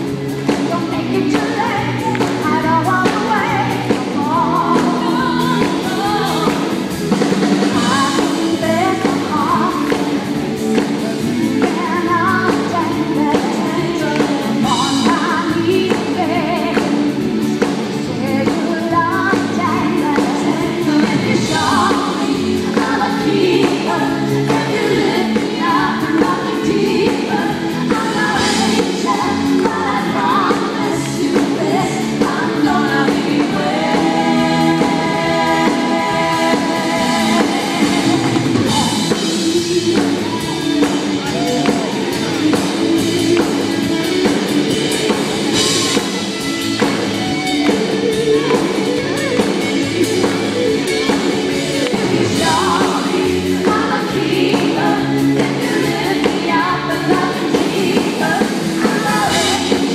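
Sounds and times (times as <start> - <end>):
backing vocalists singing: 0.0 - 17.4, 18.1 - 44.3, 51.8 - 59.9
live dance-pop band: 0.0 - 59.9
woman singing lead: 0.0 - 59.9.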